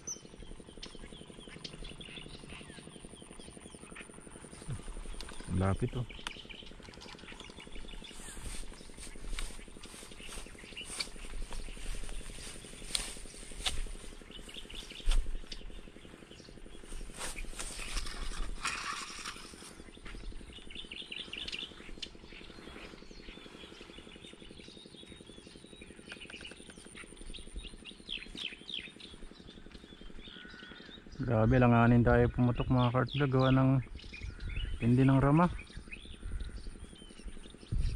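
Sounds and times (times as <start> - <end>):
small birds chirping: 0.0 - 37.9.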